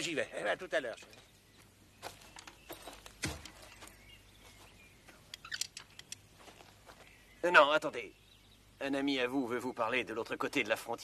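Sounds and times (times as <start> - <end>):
light hiss: 5.0 - 9.4.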